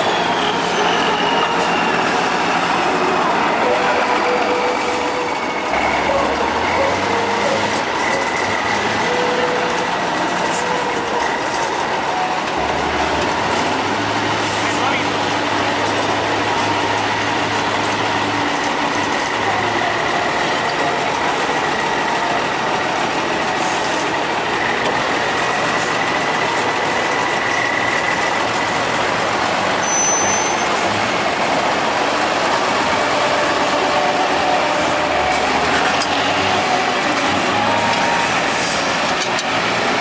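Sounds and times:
truck diesel engine running: 0.0 - 40.0.

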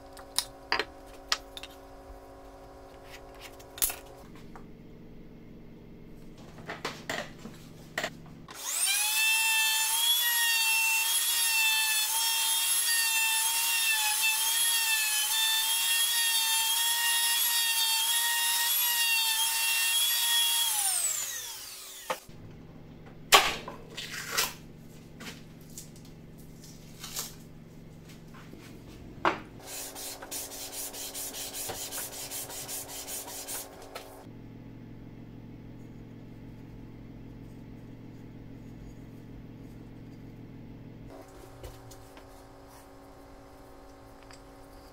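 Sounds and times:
trim router whining: 8.5 - 22.3
rough rubbing: 29.6 - 34.2.

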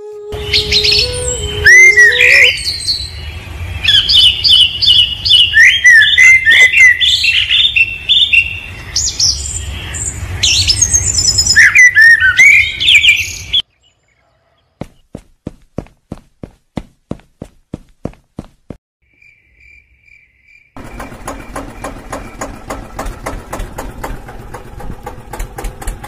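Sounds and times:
small birds chirping: 0.5 - 17.2.

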